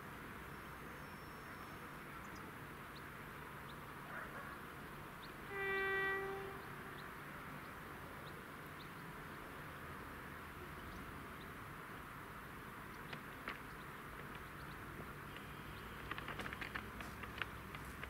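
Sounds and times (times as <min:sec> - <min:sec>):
locomotive horn blast: 0:05.4 - 0:07.1.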